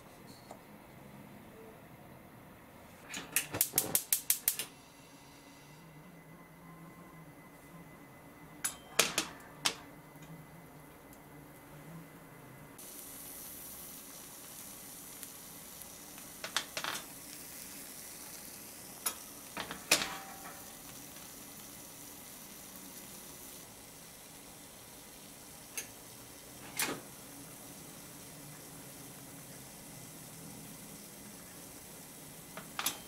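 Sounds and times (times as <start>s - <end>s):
sandwich sizzling in a sandwich maker: 12.8s - 33.0s.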